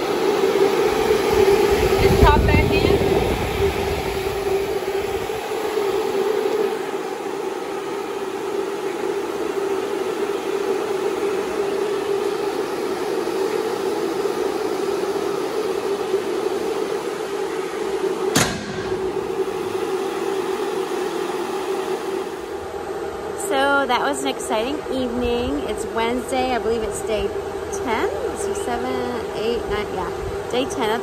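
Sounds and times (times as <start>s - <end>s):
loader mechanical hum: 0.0s - 31.0s
metal engine door banging shut: 18.3s - 19.4s.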